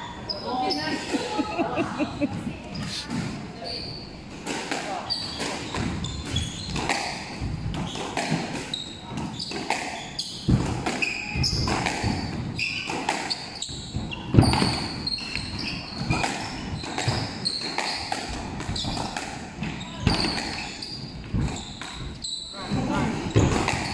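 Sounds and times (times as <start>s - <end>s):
shoes squeaking on wooden floor: 0.1s - 4.3s, 5.1s - 23.9s
rackets striking ball: 23.3s - 23.9s.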